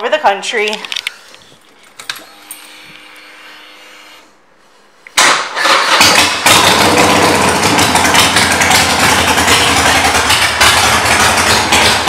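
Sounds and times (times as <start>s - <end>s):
electric starter cranking: 5.2s - 12.0s
motorcycle engine running: 5.9s - 12.0s.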